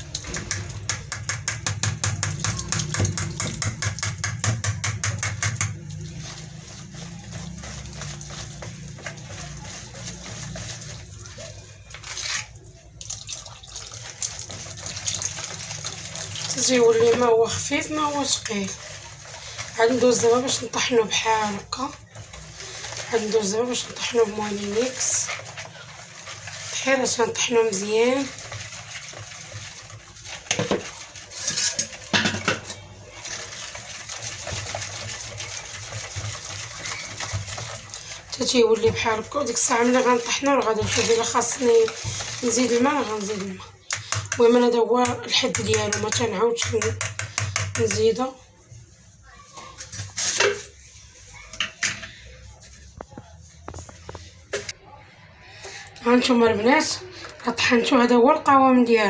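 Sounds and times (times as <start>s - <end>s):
whisk scraping through batter: 0.0s - 12.9s, 13.7s - 48.2s, 49.5s - 53.1s
water pouring from a jug: 0.0s - 44.5s.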